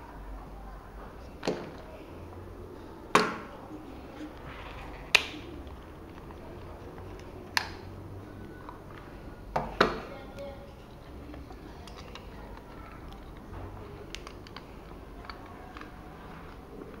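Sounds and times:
plastic parts clicking: 11.3s - 17.0s.

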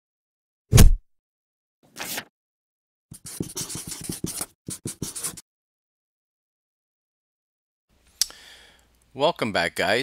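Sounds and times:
marker pen scratching on paper: 3.1s - 5.4s.

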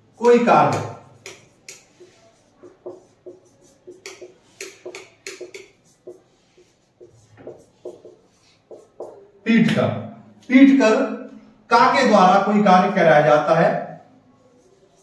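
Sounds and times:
marker squeaking on whiteboard: 0.2s - 9.4s, 14.4s - 15.0s.

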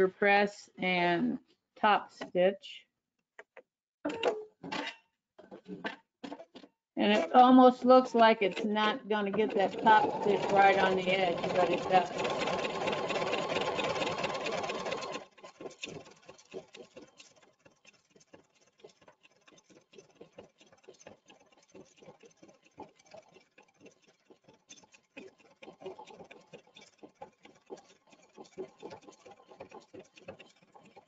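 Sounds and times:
embroidery machine stitching: 7.1s - 17.5s, 25.1s - 31.0s
faint rapid irregular ticking: 7.4s - 31.0s.

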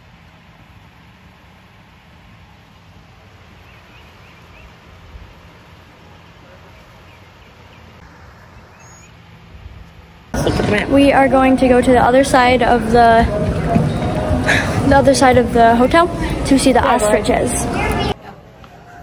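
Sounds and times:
low hum: 0.0s - 18.2s
faint bird chirps: 6.4s - 9.2s.

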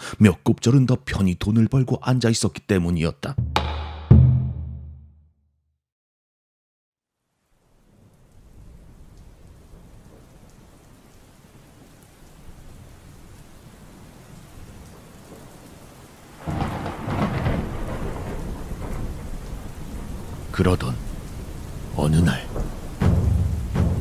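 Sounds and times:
steady rain: 7.1s - 24.0s
thunder clap and rumbling: 16.4s - 24.0s.

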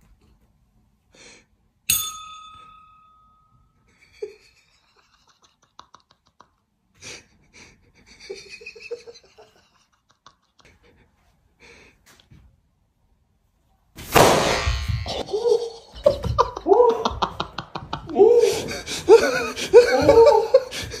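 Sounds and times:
loud laughter: 3.9s - 10.9s, 14.8s - 21.0s
sudden loud crash: 14.1s - 15.1s.

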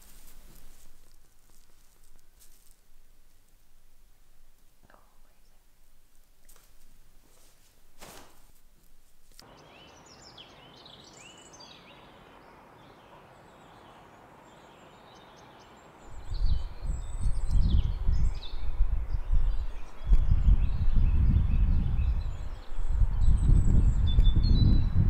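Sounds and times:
small birds chirping and singing: 9.3s - 25.0s
wind buffeting microphone: 16.1s - 25.0s.

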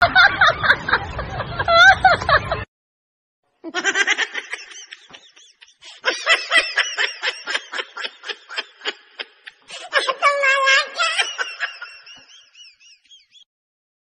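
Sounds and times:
person giggling: 3.7s - 12.8s.

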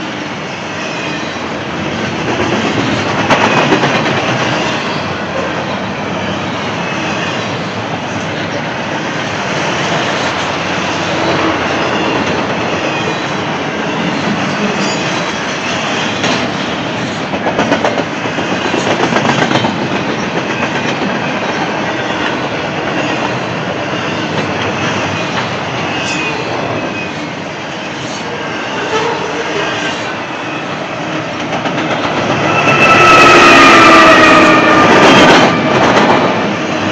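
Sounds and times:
freight train wheels rumbling: 0.0s - 36.9s
wheels clacking over rail joints: 15.8s - 25.6s, 31.1s - 32.7s.

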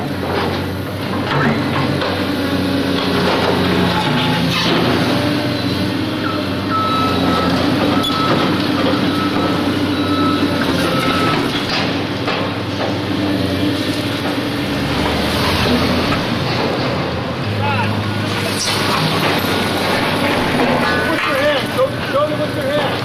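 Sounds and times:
heavy vehicle engine running: 0.0s - 23.0s
reversing alarm beeps: 6.2s - 11.6s.

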